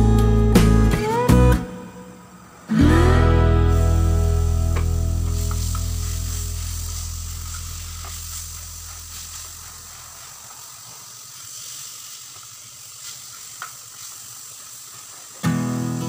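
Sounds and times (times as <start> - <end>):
acoustic guitar strumming: 0.0 - 8.1, 15.4 - 16.0
chicken sizzling in oil: 3.7 - 16.0.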